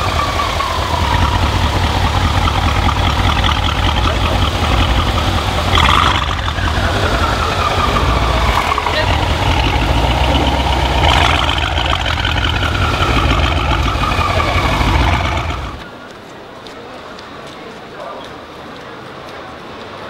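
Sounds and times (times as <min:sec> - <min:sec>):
car engine idling: 0:00.0 - 0:15.9
engine revving: 0:00.0 - 0:15.9.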